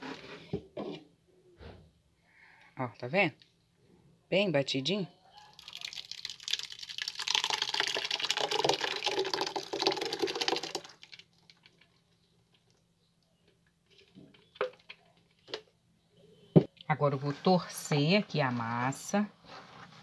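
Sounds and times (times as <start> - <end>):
wet pulp pouring onto cloth: 5.6 - 11.8.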